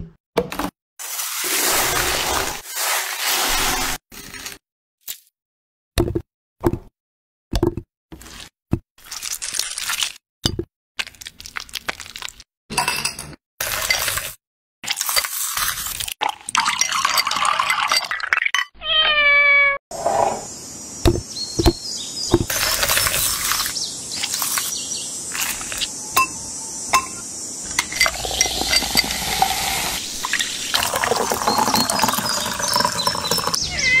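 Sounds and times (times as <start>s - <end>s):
liquid pouring: 1.0s - 4.0s, 14.9s - 18.6s, 27.7s - 33.6s
muddler clinking in glass: 16.6s - 18.7s, 26.2s - 29.8s, 30.8s - 33.6s
cat meow: 18.8s - 19.8s, 33.6s - 34.0s.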